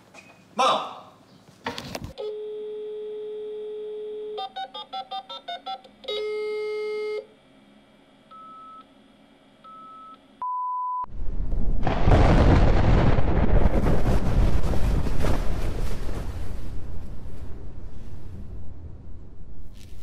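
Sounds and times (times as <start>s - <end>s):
keypad dialing tones: 2.2s - 7.2s
telephone dial tone: 2.2s - 7.3s
single pure beep: 9.7s - 11.1s.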